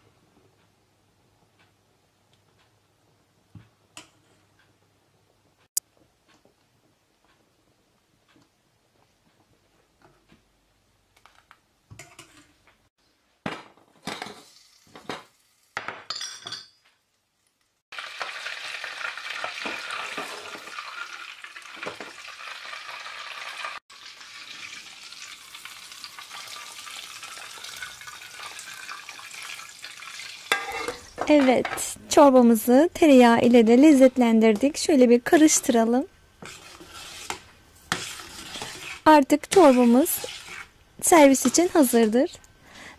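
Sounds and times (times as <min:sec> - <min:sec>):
butter sizzling: 0:14.2 - 0:15.8, 0:17.7 - 0:42.4
ladle stirring thick soup: 0:36.4 - 0:40.7.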